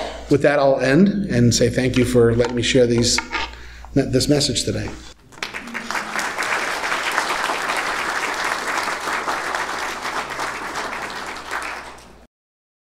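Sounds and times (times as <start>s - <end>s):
congregation applauding: 5.2s - 12.3s.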